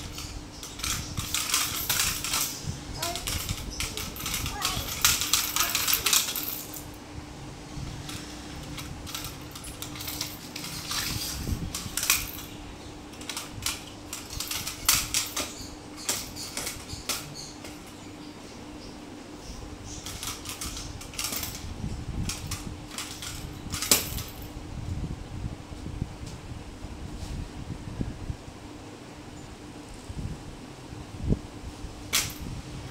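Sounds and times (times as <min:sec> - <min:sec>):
plastic toy rattling on marble floor: 0:00.0 - 0:06.8, 0:08.0 - 0:12.6, 0:13.2 - 0:17.8, 0:20.0 - 0:21.6, 0:22.2 - 0:24.4.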